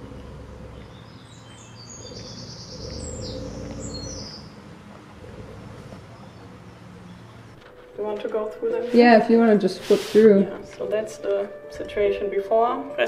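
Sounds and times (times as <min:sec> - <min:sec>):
small birds chirping: 0:00.0 - 0:07.6.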